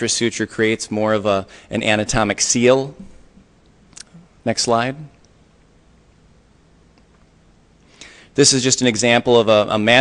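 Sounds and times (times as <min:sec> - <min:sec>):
person speaking: 0:00.0 - 0:05.3
faint low hum and hiss: 0:00.0 - 0:10.0.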